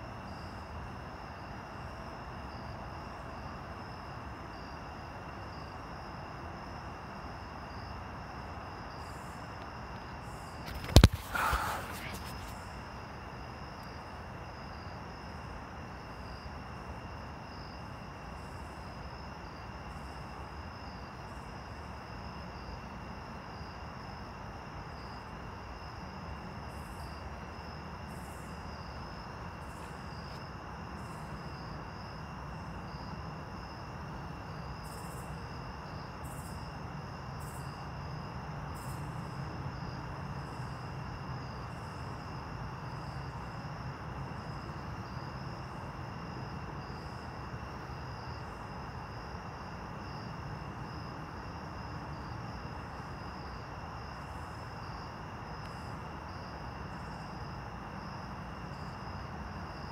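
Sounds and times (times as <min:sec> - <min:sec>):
insects trilling: 0:00.2 - 0:22.8.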